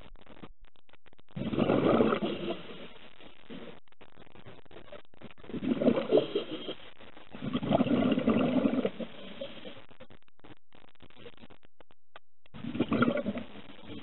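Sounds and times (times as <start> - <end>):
underwater exhaled bubbles: 1.4 - 2.9, 5.5 - 9.8, 12.5 - 14.0.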